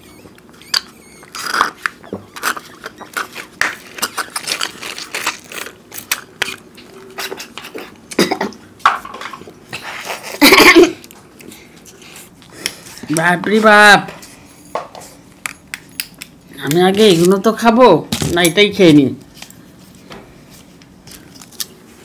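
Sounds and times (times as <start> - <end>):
cardboard cartons crinkling: 2.4 - 7.5.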